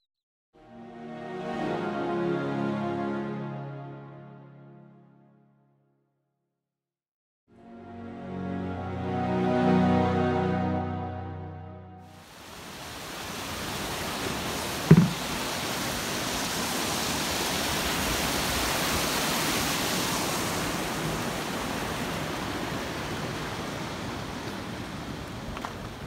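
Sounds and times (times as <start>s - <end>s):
stream rushing over boulders: 12.2s - 26.0s
short thump: 14.9s - 15.2s.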